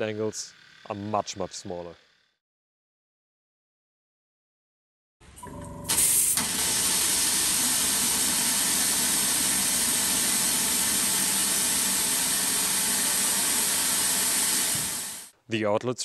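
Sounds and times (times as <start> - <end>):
loud steady spray hiss: 5.9 - 15.3.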